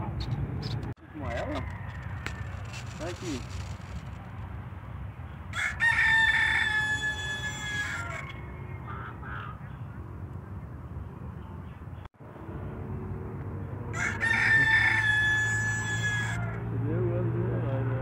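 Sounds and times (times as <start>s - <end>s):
guineafowl calling: 5.5s - 10.0s.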